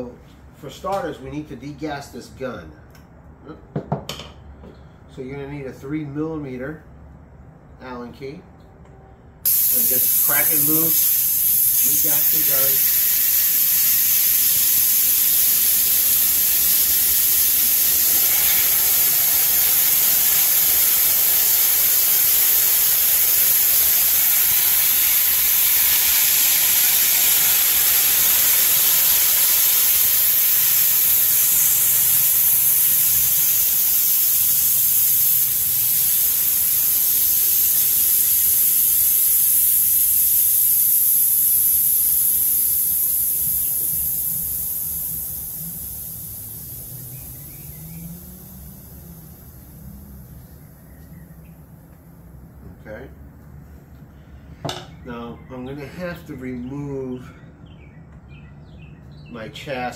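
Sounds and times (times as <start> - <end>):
compressed air hissing: 9.4 - 51.7.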